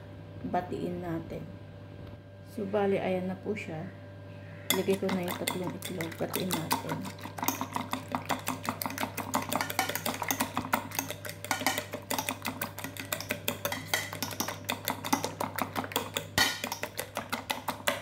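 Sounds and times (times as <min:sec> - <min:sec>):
utensil clicking against bowl: 0:04.7 - 0:18.0.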